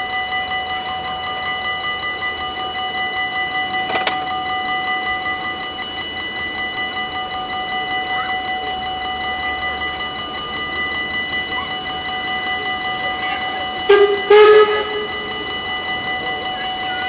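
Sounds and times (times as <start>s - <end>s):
level crossing bell ringing: 0.0s - 17.0s
train horn blasts: 13.8s - 15.6s.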